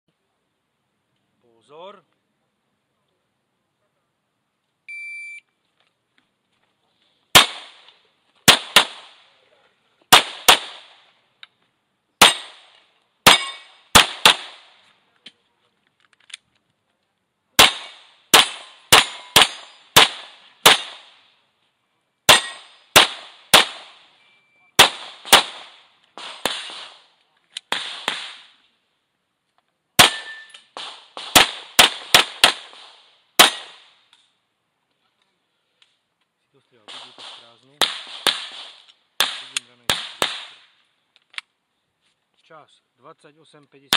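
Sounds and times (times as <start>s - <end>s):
shot timer beep: 4.9s - 5.4s
pistol shots: 7.3s - 9.2s, 10.1s - 11.1s, 12.2s - 14.8s, 17.6s - 21.2s, 22.3s - 24.1s, 24.8s - 27.0s, 27.6s - 28.5s, 30.0s - 33.9s, 36.9s - 40.7s.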